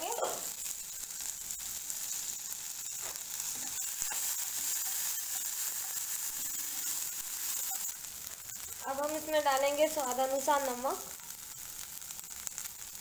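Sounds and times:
corn sizzling in butter: 0:00.0 - 0:13.0
spatula stirring kernels: 0:00.0 - 0:13.0.

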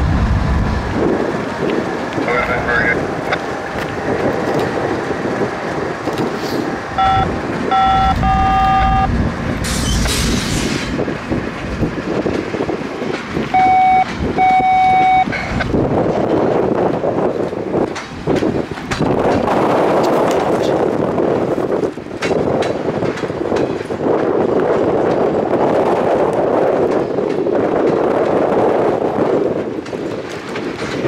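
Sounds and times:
steady rumble: 0:00.0 - 0:23.4
locomotive air horn blasts: 0:06.5 - 0:09.1.

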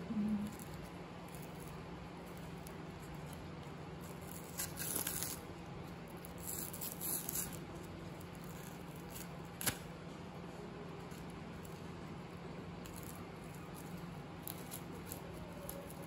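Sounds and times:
faint steady hum: 0:00.0 - 0:16.0
paper tearing and rustling: 0:04.0 - 0:05.4.

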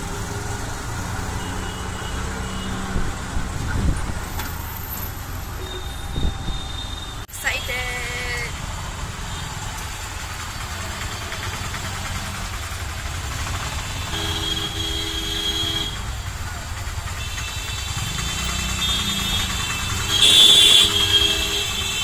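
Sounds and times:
auto-rickshaw engine running: 0:00.0 - 0:22.0
traffic noise: 0:00.0 - 0:22.0
vehicle horns: 0:01.2 - 0:03.1, 0:13.3 - 0:16.4, 0:17.0 - 0:22.0.

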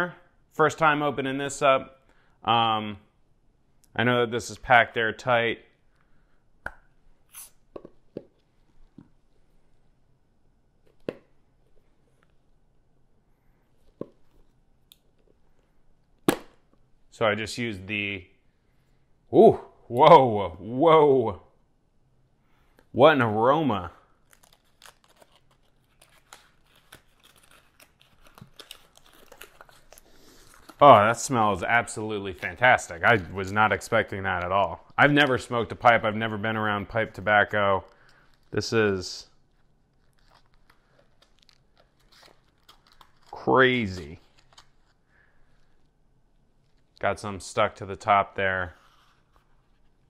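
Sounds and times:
paper crinkling: 0:24.1 - 0:50.0.

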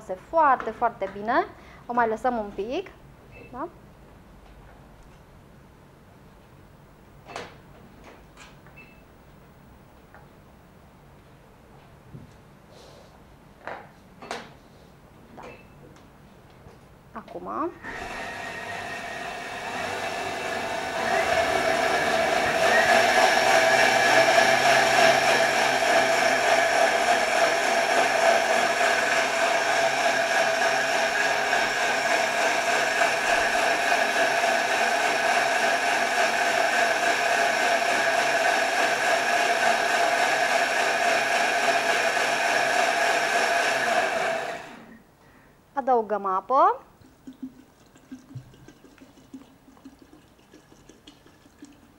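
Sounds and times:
blender motor whine: 0:17.8 - 0:45.0.

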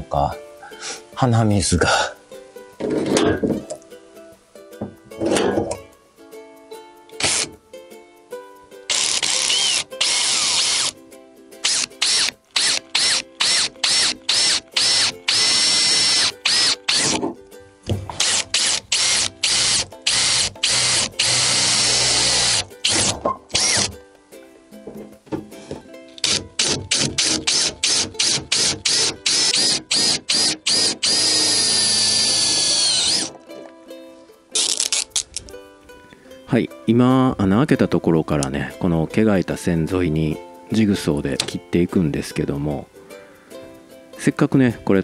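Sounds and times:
electric drill whining: 0:07.2 - 0:07.5, 0:08.9 - 0:11.0, 0:11.6 - 0:17.2, 0:18.1 - 0:23.9, 0:26.2 - 0:33.4.

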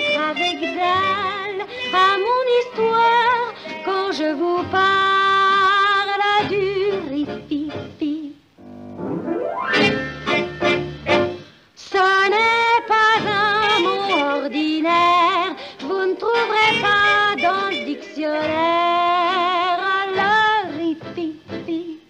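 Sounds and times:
woman singing: 0:00.0 - 0:08.5, 0:11.8 - 0:22.0
musical accompaniment chords: 0:08.6 - 0:11.6, 0:13.3 - 0:19.0.

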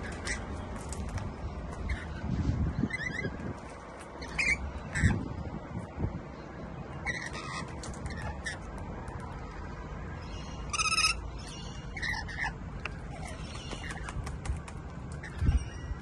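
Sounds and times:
parrots screeching: 0:02.9 - 0:03.3, 0:04.2 - 0:05.2, 0:07.0 - 0:08.7, 0:10.5 - 0:14.0.

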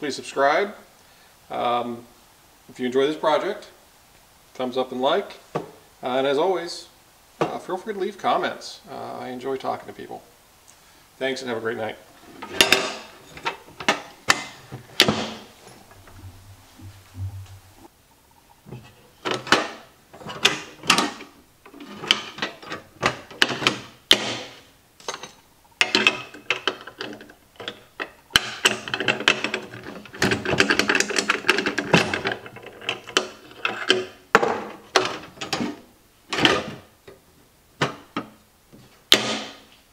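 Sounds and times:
metal latch clacking and scraping: 0:12.2 - 0:17.9, 0:18.7 - 0:36.8.

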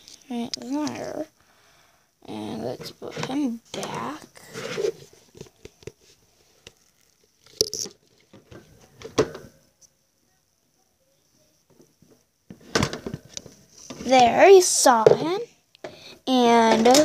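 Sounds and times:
rustling scuffle: 0:03.9 - 0:06.2.

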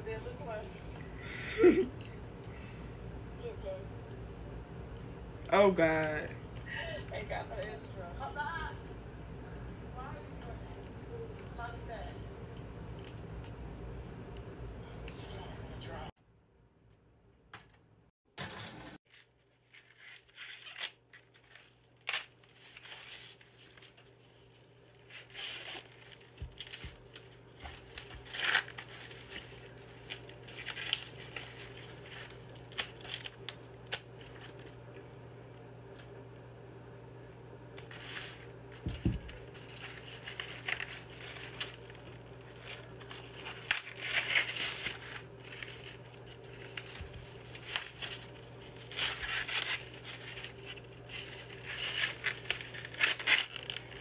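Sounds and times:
corn husks tearing: 0:25.0 - 0:34.6, 0:39.3 - 0:54.0.

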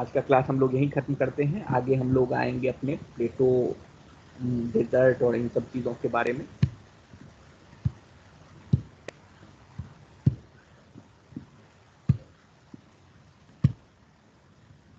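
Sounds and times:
faint background hiss: 0:00.0 - 0:14.9
soft dull thumps: 0:06.5 - 0:12.9, 0:13.6 - 0:13.9.

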